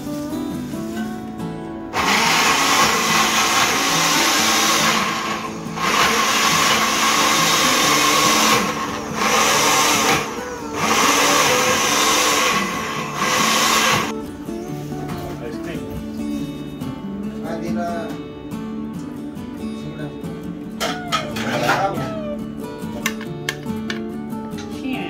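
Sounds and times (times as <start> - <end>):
electric blender running: 2.0 - 14.1.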